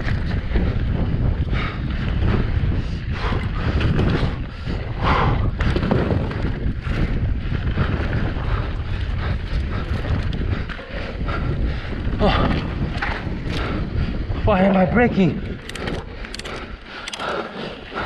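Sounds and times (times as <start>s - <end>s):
bike knocking and rattling: 0.0s - 14.2s, 15.3s - 18.0s
wind buffeting microphone: 0.0s - 18.0s
bike tyres crunching on dirt: 5.5s - 9.0s.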